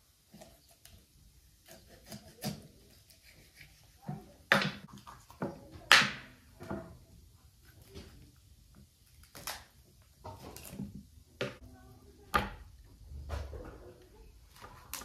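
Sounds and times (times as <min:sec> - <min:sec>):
knife cutting raw chicken: 0:01.6 - 0:05.5.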